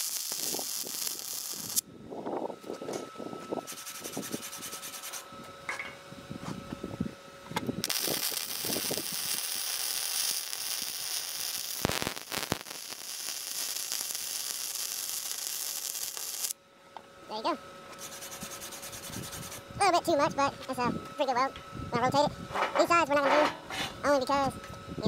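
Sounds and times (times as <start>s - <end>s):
sharp welding pops: 0.0s - 1.8s, 7.6s - 16.6s
welding arc buzzing: 0.0s - 1.9s, 3.6s - 5.8s, 7.5s - 16.6s, 17.3s - 21.4s.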